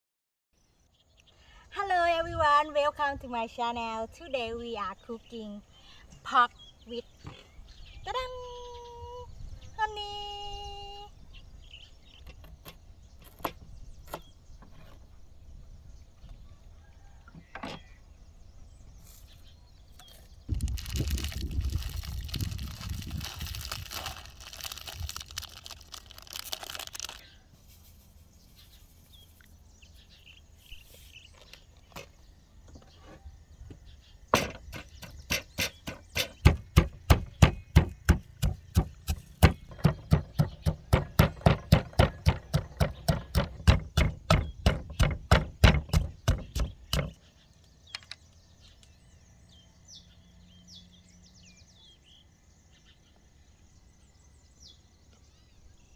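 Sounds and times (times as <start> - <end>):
stone pestle pounding in mortar: 34.4 - 47.2.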